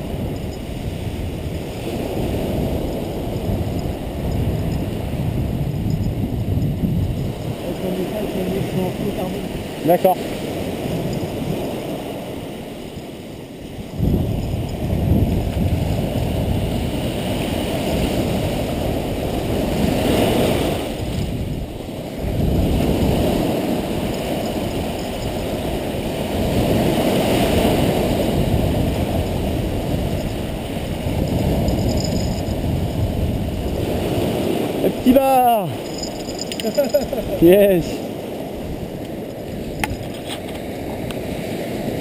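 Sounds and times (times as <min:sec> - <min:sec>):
surf washing up a sandy beach: 0:00.0 - 0:42.0.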